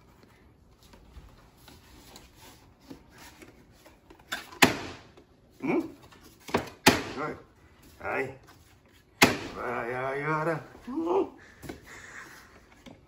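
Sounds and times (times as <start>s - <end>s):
rustling and handling: 0.0s - 6.8s.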